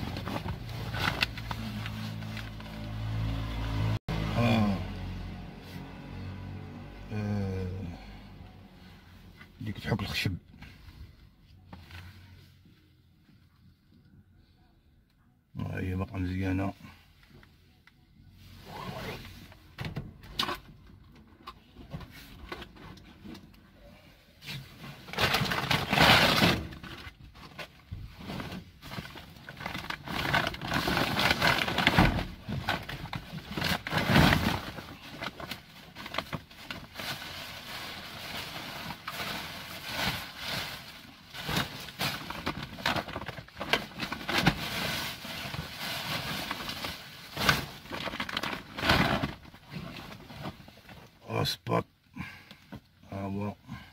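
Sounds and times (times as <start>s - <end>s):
plastic bags rustling and crinkling: 0.0s - 3.2s, 24.5s - 51.2s.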